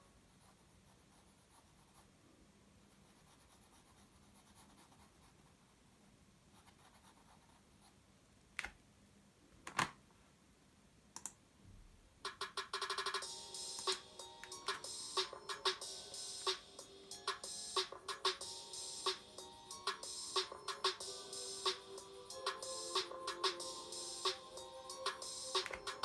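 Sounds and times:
pencil scratching on paper: 0:02.8 - 0:05.8
sharp clicks: 0:11.2 - 0:11.4.

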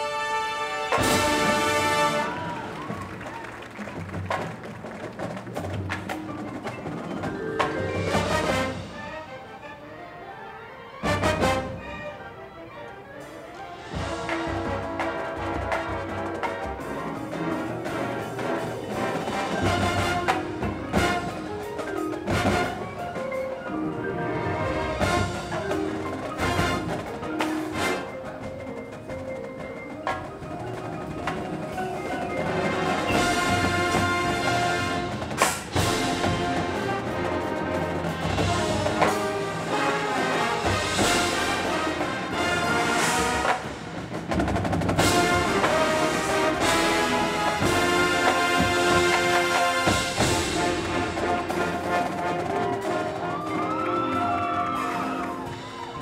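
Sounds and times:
marching band playing: 0:00.0 - 0:56.0
sharp percussion accents: 0:24.6 - 0:56.0.

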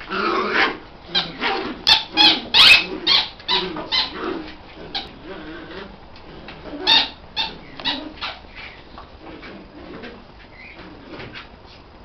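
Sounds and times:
dogs barking: 0:00.5 - 0:04.4.

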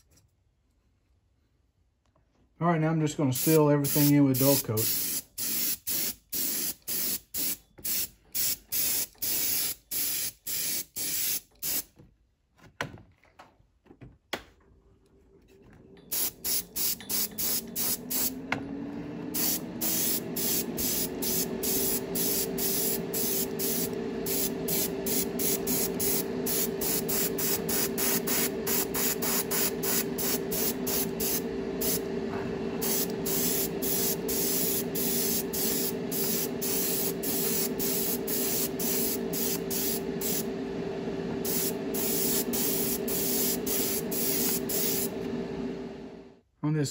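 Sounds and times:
airbrush spraying: 0:03.3 - 0:11.8, 0:16.1 - 0:18.4, 0:19.3 - 0:40.6, 0:41.4 - 0:45.3
motor hum: 0:15.5 - 0:46.4.

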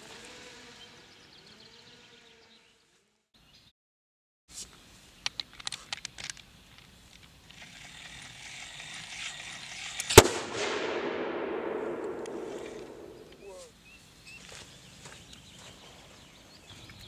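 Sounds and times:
explosion with rolling echo: 0:10.2 - 0:13.4.

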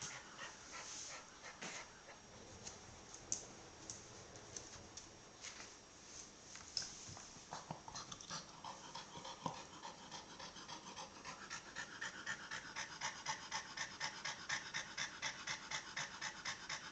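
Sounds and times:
dog panting: 0:00.0 - 0:02.2, 0:07.5 - 0:16.9.

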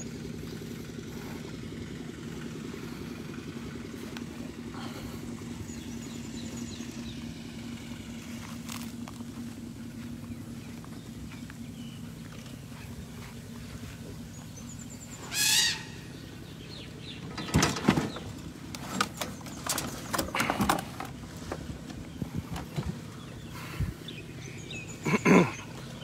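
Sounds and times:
elephants crunching food: 0:08.0 - 0:14.3.

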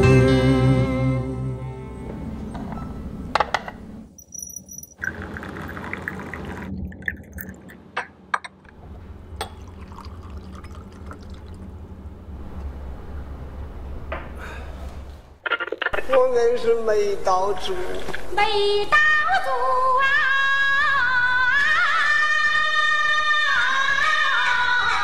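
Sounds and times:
tea pouring: 0:04.8 - 0:07.8, 0:09.4 - 0:11.9
porcelain cups clinking: 0:09.4 - 0:11.6.

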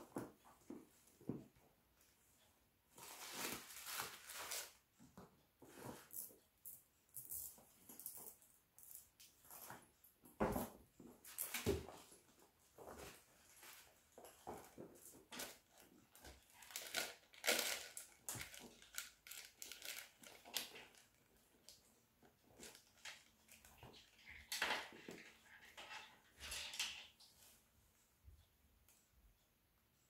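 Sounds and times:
tissue paper crinkling: 0:03.0 - 0:04.8, 0:16.6 - 0:21.1.

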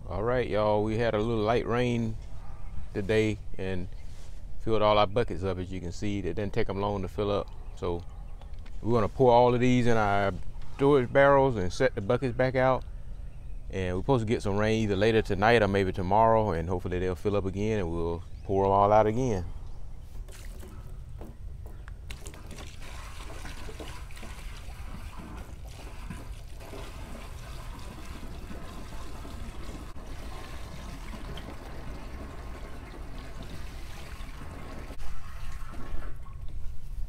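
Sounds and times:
water trickling into plastic drum: 0:20.2 - 0:36.2.

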